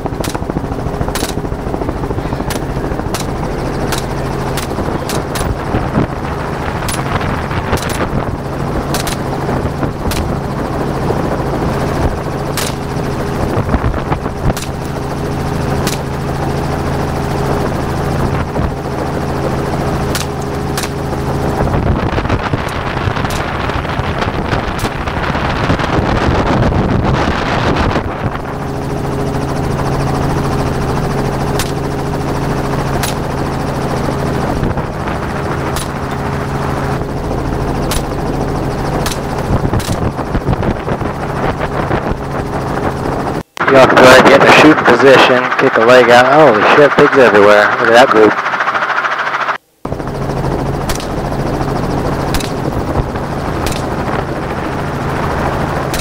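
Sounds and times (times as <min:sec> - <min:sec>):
helicopter drone: 0:00.0 - 0:56.0
sharp cracks: 0:00.2 - 0:00.5, 0:01.1 - 0:01.5, 0:02.5 - 0:05.6, 0:08.9 - 0:09.3, 0:10.1 - 0:10.4, 0:12.5 - 0:12.9, 0:14.5 - 0:15.0, 0:15.8 - 0:16.2, 0:20.1 - 0:21.0, 0:37.8 - 0:38.2, 0:52.3 - 0:52.6, 0:53.6 - 0:54.0
loud rushing noise: 0:43.4 - 0:49.7.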